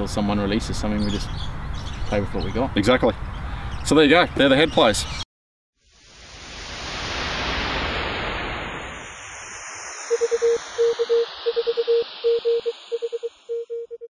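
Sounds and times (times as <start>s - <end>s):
whoosh of static noise: 5.8s - 14.0s
morse code beeps: 10.1s - 14.0s.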